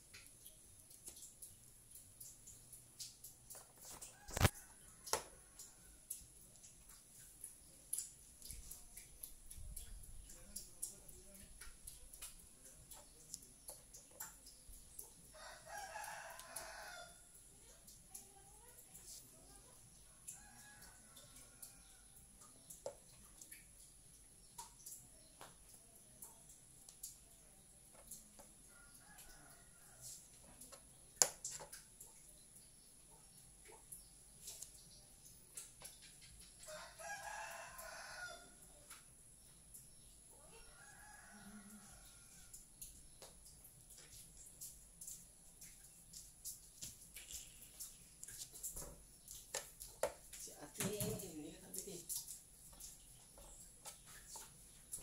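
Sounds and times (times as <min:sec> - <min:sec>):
rooster crowing: 0:15.4 - 0:17.2, 0:36.7 - 0:38.6, 0:40.7 - 0:42.6.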